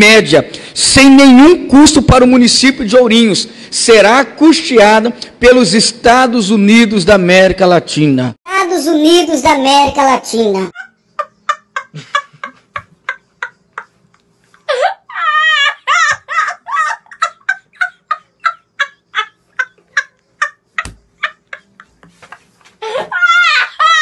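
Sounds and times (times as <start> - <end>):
boy laughing hysterically: 10.7 - 24.0.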